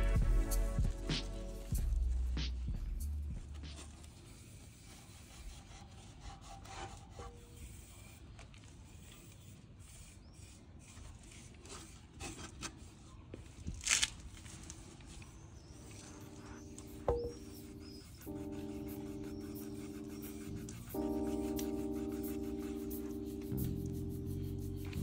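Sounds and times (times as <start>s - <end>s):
cloth wiping metal: 15.8s - 25.0s.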